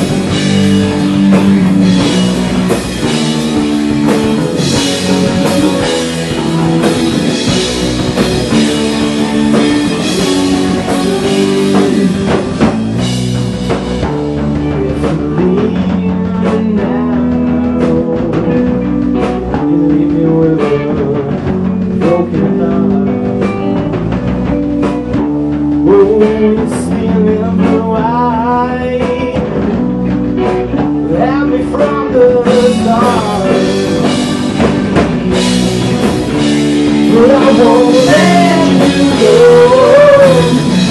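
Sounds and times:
drum hits: 0.0s - 28.3s, 29.0s - 40.9s
rock band playing live: 0.0s - 40.9s
male lead vocal: 4.4s - 13.0s, 14.4s - 23.8s, 25.8s - 30.0s, 31.0s - 34.6s, 36.9s - 40.9s.

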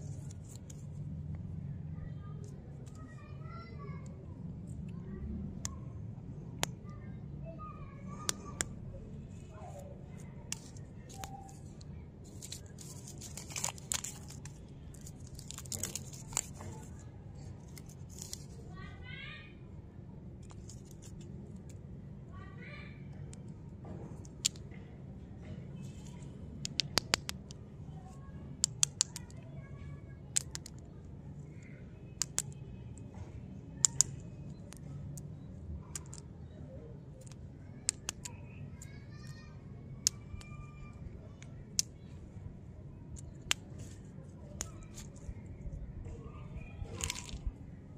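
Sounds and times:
lollipops clicking together: 10.5s - 16.9s, 26.6s - 27.6s, 28.6s - 29.4s, 30.3s - 30.8s, 32.2s - 32.6s, 33.8s - 35.3s, 37.2s - 38.4s
wrapper crinkling: 12.3s - 16.9s.

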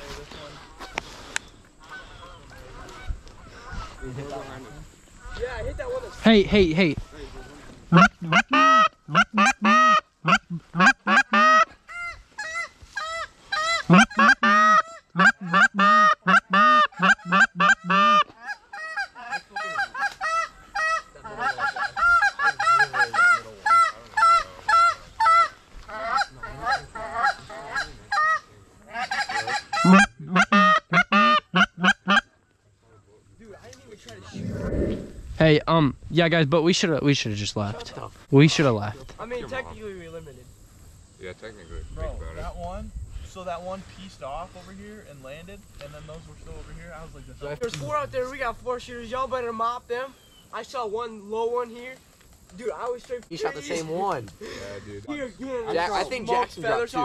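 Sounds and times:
geese honking: 1.8s - 4.3s, 7.0s - 32.3s.

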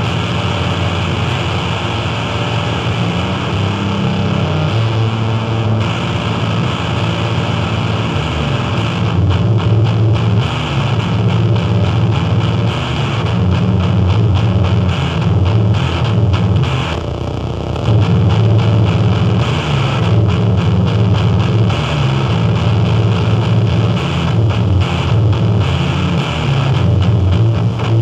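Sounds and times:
distorted noise music: 0.0s - 28.0s
heavy low drone: 0.0s - 28.0s.

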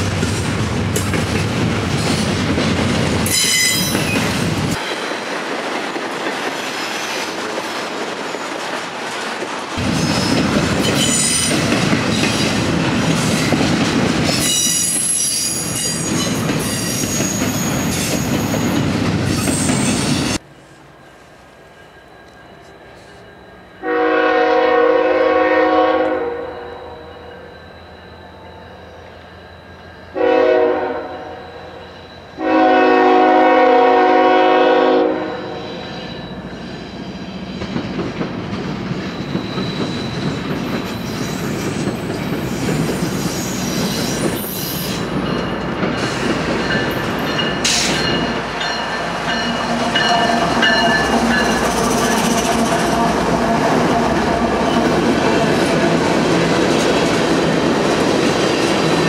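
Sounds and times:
train rumble: 0.0s - 26.2s, 36.2s - 59.0s
locomotive horn blasts: 23.8s - 26.7s, 30.2s - 31.4s, 32.4s - 35.6s.

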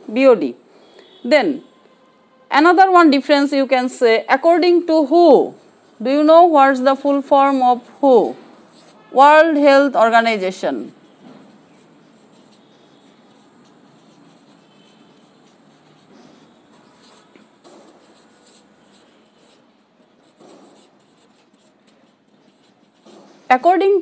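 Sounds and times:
marker pen writing on whiteboard: 4.6s - 24.0s.

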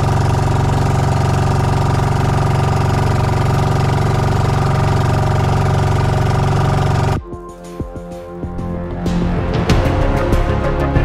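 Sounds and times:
boat engine idling: 0.0s - 7.2s.

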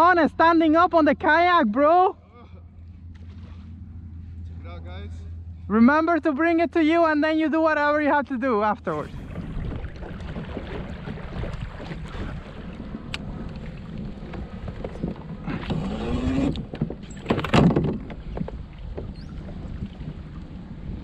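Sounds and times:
wind buffeting microphone: 9.0s - 21.0s.

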